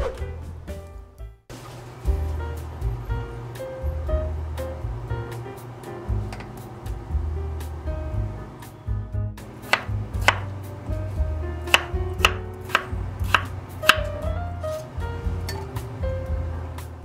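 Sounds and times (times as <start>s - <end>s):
soft background music: 0.0s - 17.0s
knife chopping on wooden board: 9.6s - 10.5s, 11.7s - 14.9s.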